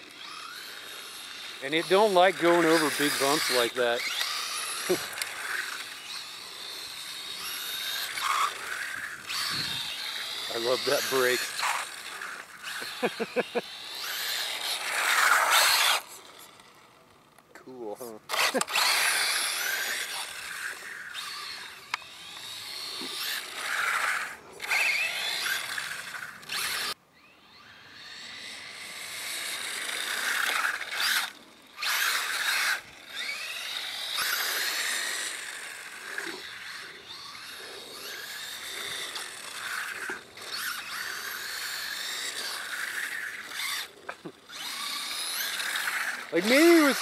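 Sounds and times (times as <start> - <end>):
electric toy car motor whining: 0.0 - 17.4, 18.0 - 47.0.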